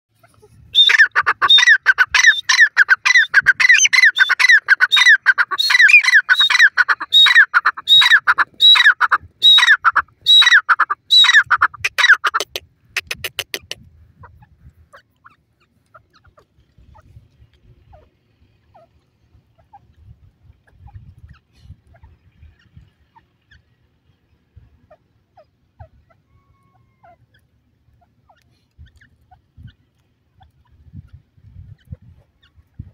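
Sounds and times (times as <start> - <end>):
francolin calling: 0.2 - 12.4.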